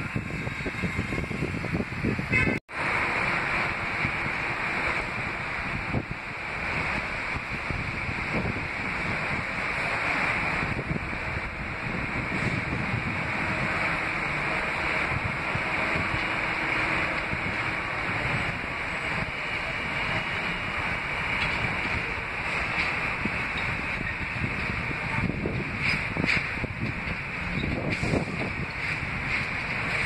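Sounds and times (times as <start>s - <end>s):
wind on microphone: 0.0s - 30.0s
subway train approaching: 2.7s - 30.0s.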